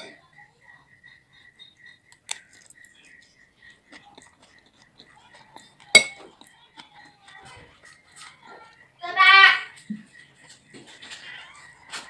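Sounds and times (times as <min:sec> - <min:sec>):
soft chewing: 0:00.0 - 0:09.0
faint high chirp: 0:00.1 - 0:03.7
cutlery clinking on a plate: 0:05.4 - 0:06.9.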